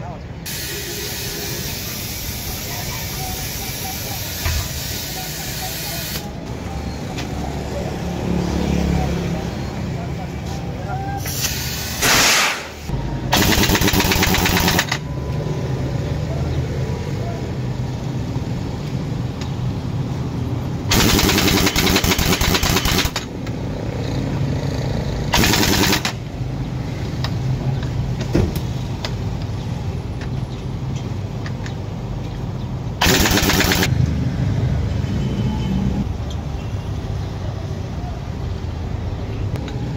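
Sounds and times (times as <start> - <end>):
air hammer rattling: 13.4 - 15.0, 20.9 - 23.3, 25.4 - 26.2, 33.0 - 33.9.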